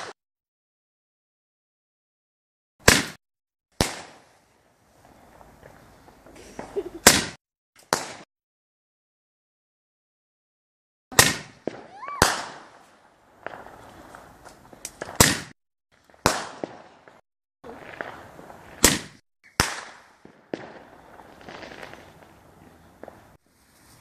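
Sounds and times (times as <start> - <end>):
fireworks bangs: 2.8 - 3.2, 3.8 - 8.3, 11.1 - 23.9
fireworks crackling: 3.8 - 8.3, 11.1 - 24.0
rising firework whistle: 17.7 - 23.3.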